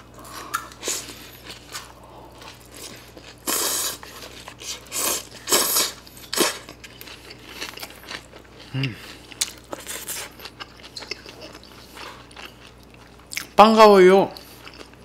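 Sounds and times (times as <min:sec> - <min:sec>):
chewing food: 0:00.2 - 0:13.6, 0:14.3 - 0:15.0
slurping noodles: 0:03.4 - 0:06.7.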